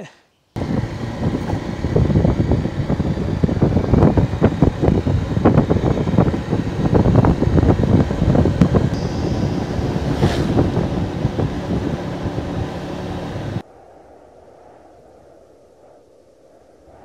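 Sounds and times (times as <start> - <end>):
motorbike running: 0.6 - 13.6
wind buffeting microphone: 0.6 - 17.0.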